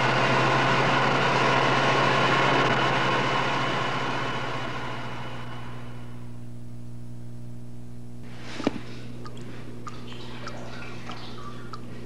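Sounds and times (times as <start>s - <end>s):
rushing engine-like noise: 0.0s - 6.2s
low hum: 0.0s - 12.0s.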